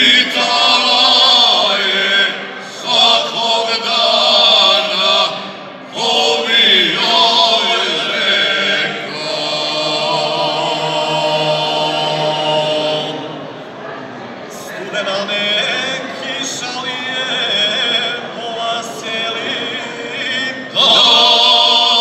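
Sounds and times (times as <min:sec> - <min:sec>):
men singing unaccompanied: 0:00.0 - 0:13.2, 0:14.7 - 0:22.0.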